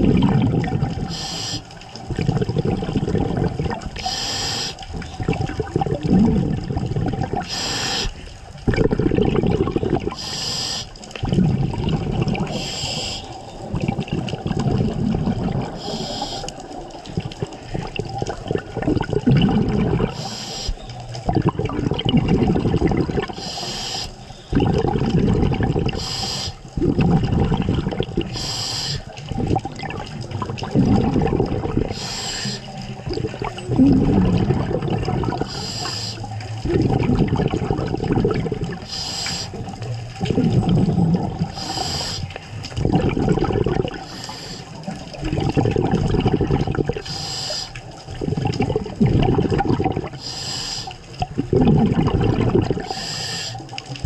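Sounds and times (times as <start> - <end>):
exhaled bubbles rumbling: 0.0 - 54.0
regulator hiss on inhale: 1.0 - 1.8, 4.0 - 4.9, 7.4 - 8.3, 10.1 - 11.0, 12.5 - 13.4, 15.7 - 16.8, 20.1 - 20.9, 23.3 - 24.3, 25.9 - 26.7, 28.3 - 29.2, 31.9 - 32.8, 35.4 - 36.4, 38.8 - 39.7, 41.5 - 42.5, 44.0 - 45.0, 47.0 - 48.0, 50.1 - 51.1, 52.8 - 53.7.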